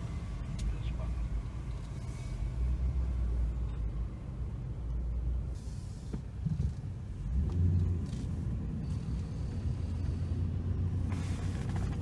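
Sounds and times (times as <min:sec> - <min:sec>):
low engine rumble: 0:00.0 - 0:12.0.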